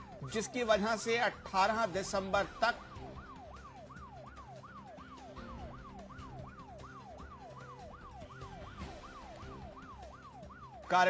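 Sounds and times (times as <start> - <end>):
siren-like sweeping tone: 2.4 - 10.9.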